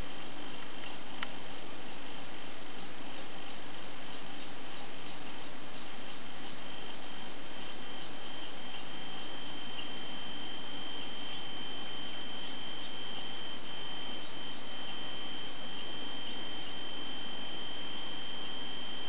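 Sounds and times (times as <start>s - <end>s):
constant hiss: 0.0s - 19.0s
high-pitched electronic whine: 0.0s - 19.0s.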